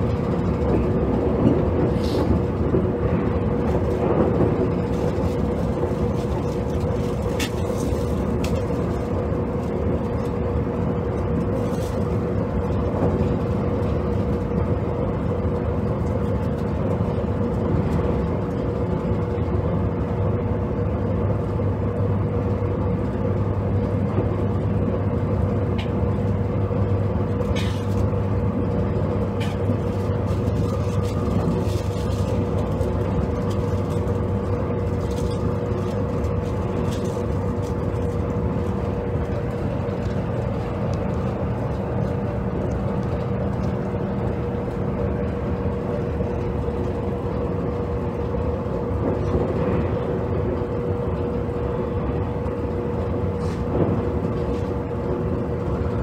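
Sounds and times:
high steady whine: 0:00.0 - 0:56.0
train running at speed: 0:00.0 - 0:56.0.

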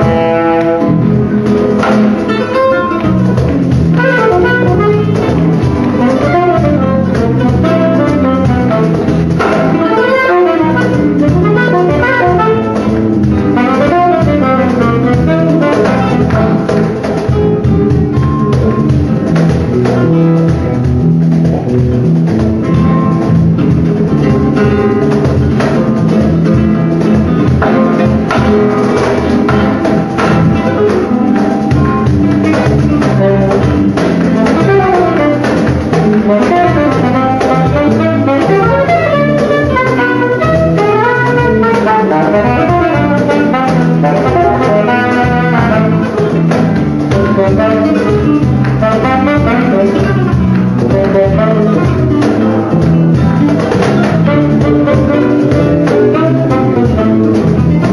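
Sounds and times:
saxophone playing quick runs: 0:00.0 - 0:17.6, 0:31.8 - 0:57.9
flamenco guitar: 0:00.0 - 0:57.9
percussion: 0:00.0 - 0:57.9.

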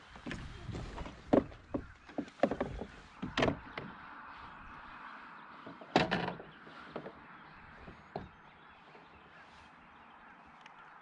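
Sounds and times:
knocks and thuds on kayak: 0:00.2 - 0:03.9, 0:07.8 - 0:08.4.

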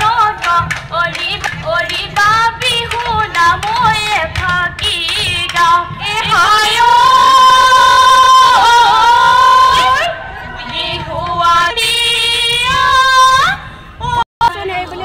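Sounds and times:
woman singing through speakers: 0:00.0 - 0:15.0.

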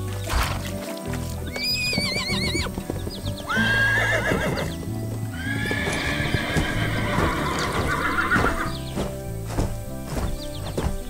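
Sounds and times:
background music with bass line: 0:00.0 - 0:11.0
horse neighing: 0:01.4 - 0:08.8.

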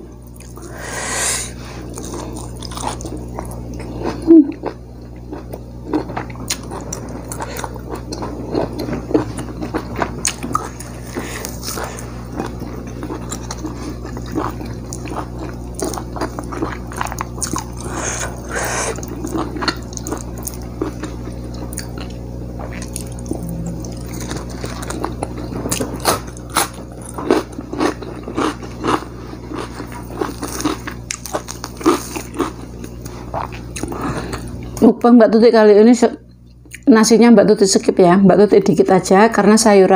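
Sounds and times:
low hum: 0:00.0 - 0:30.2
chewing and biting: 0:01.8 - 0:34.8.

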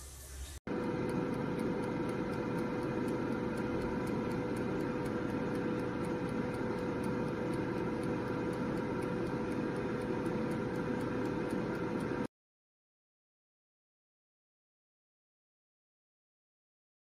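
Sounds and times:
air fryer fan humming: 0:00.0 - 0:12.3
mechanical timer ticking: 0:00.7 - 0:12.3.

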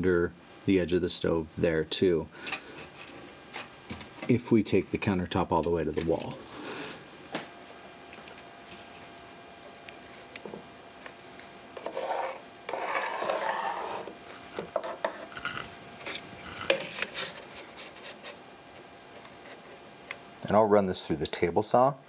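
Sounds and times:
pencil scratching on board: 0:11.8 - 0:14.2.

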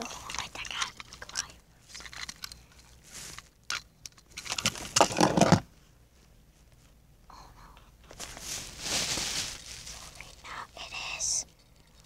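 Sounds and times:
rustling scuffing noise: 0:02.9 - 0:03.5, 0:08.1 - 0:10.2.

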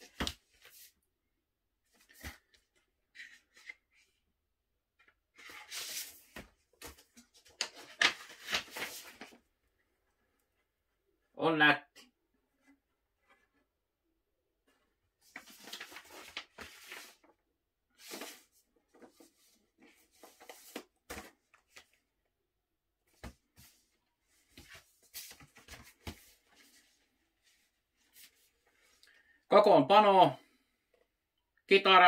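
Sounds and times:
paper and card rustling: 0:05.3 - 0:09.4, 0:15.2 - 0:17.3, 0:18.0 - 0:22.0, 0:23.2 - 0:29.0.

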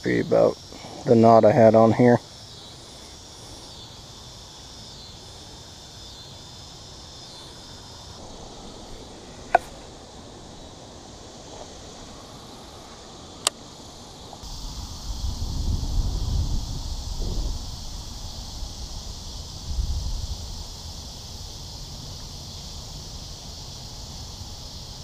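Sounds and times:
insects trilling: 0:00.0 - 0:25.0
wind noise on microphone: 0:14.4 - 0:25.0.

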